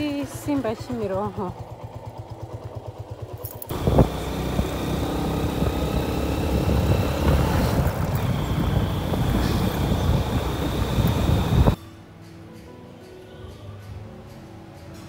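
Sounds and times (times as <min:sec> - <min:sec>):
motorcycle engine idling: 0:00.0 - 0:11.8
motorcycle riding with wind noise: 0:00.0 - 0:11.8.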